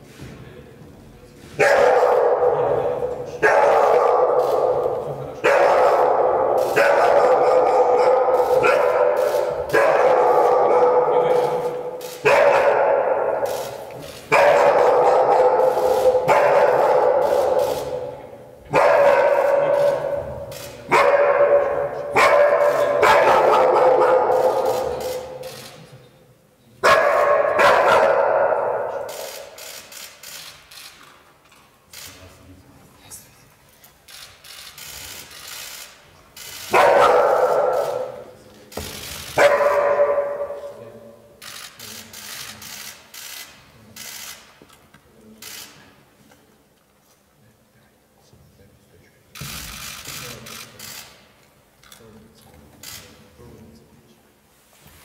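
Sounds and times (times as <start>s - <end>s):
dog barking loudly: 1.6s - 25.4s, 26.8s - 29.4s, 36.7s - 38.3s, 39.3s - 41.2s.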